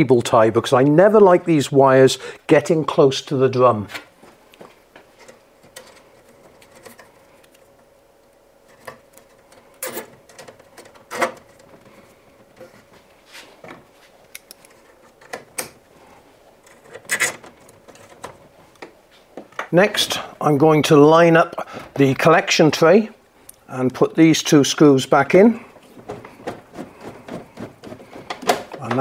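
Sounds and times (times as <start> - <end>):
clicks of handling plastic wiring: 3.9 - 15.8, 16.6 - 19.8, 25.8 - 29.0.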